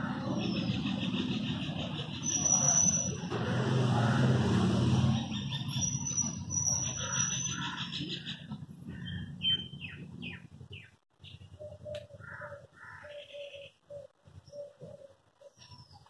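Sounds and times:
small birds chirping: 0.0 - 3.3, 5.1 - 16.0.

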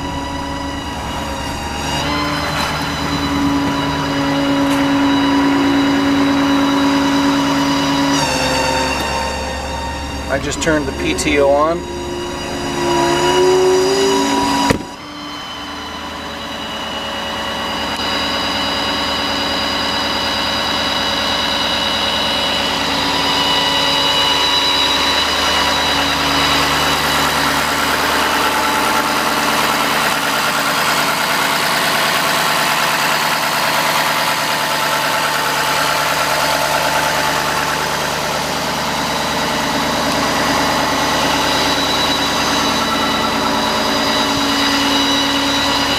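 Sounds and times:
high multi-tone whine: 0.0 - 45.9
truck engine idling: 0.0 - 45.9
sharp thump: 14.6 - 15.0.

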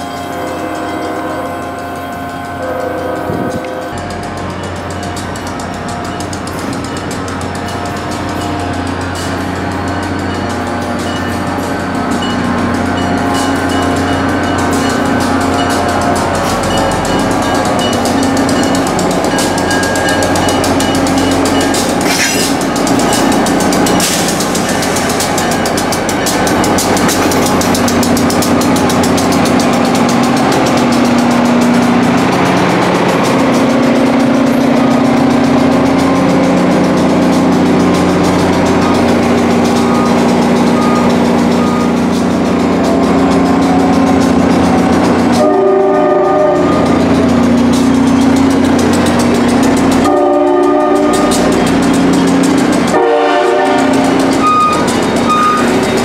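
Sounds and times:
train horn: 0.0 - 4.0, 42.9 - 47.4, 50.0 - 51.6, 52.9 - 55.6
diesel locomotive running: 0.0 - 56.0.

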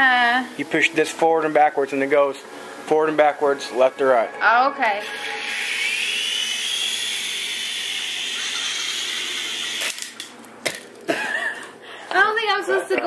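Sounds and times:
toy helicopter motor whine: 4.9 - 10.2.

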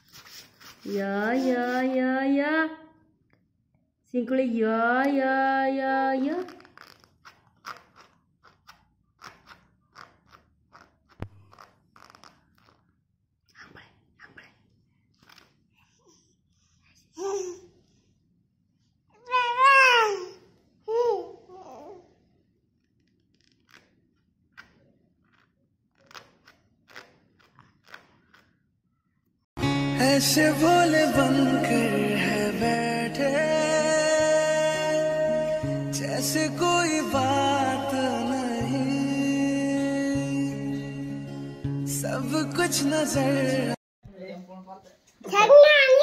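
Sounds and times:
plastic sheet crinkling: 0.0 - 2.0, 6.2 - 12.8
baby sucking on fist: 6.4 - 12.9.

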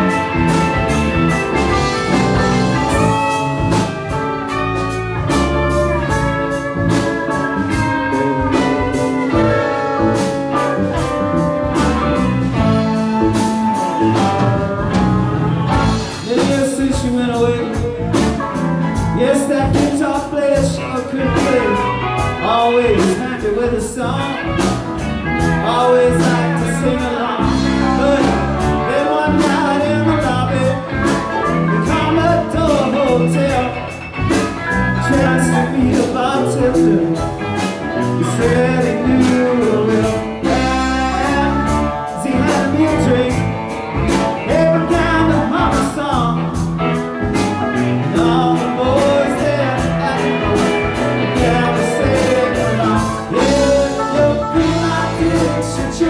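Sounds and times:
drum kit beat: 0.0 - 56.0
electric guitars: 0.0 - 56.0
organ: 0.0 - 56.0.

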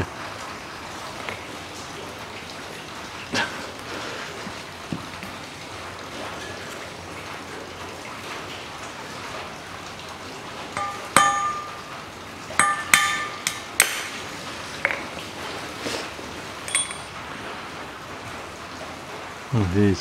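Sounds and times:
hammer striking metal: 10.8 - 12.0, 12.6 - 14.2, 16.7 - 17.1.

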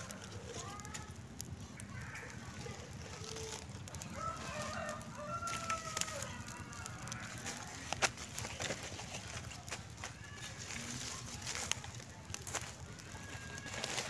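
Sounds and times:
dry leaves and twigs crackling: 0.0 - 14.0
rooster crowing: 4.0 - 7.4.

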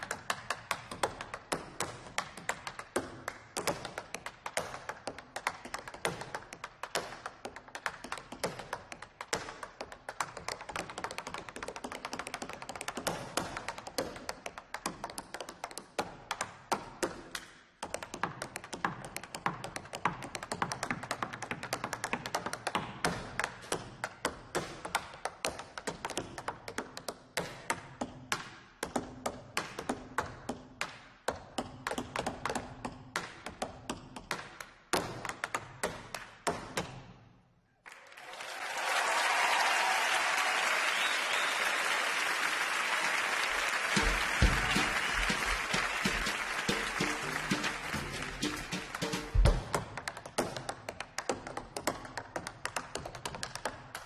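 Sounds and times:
tap shoes clicking: 44.0 - 54.0
heel thumps: 49.3 - 49.8.

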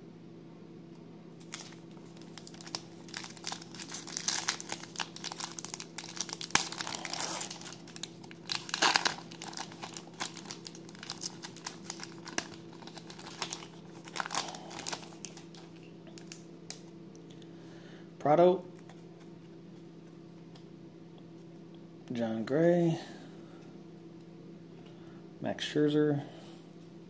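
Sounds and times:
foil wrapper crinkling and tearing: 1.4 - 16.8.

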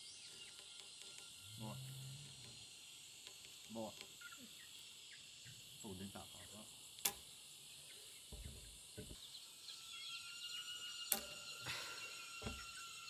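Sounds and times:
insects chirring: 0.0 - 13.0
dull knocks of handling: 8.3 - 9.2, 12.4 - 12.7
ink line snapping on wood: 11.1 - 11.4
sharp click: 11.1 - 11.4.

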